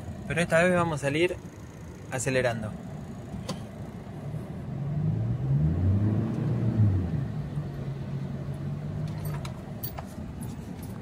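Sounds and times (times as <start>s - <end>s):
truck engine revving: 4.8s - 9.1s.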